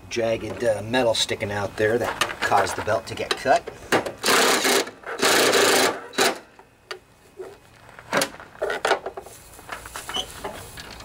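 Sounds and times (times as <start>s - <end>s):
cordless drill running: 4.2s - 6.4s.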